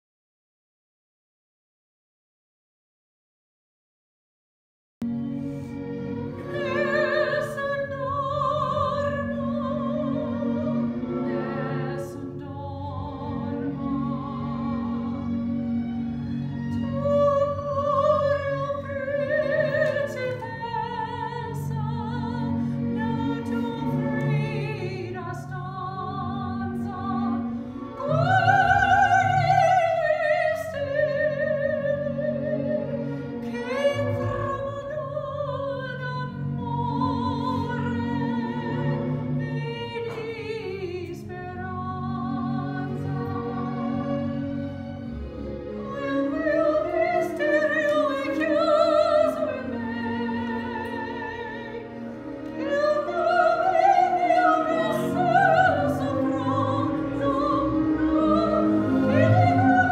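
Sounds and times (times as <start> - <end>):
instrumental accompaniment: 5.0 - 59.9
woman singing operatically: 6.4 - 10.7, 11.9 - 15.2, 16.8 - 43.5, 45.8 - 52.0, 52.6 - 59.9.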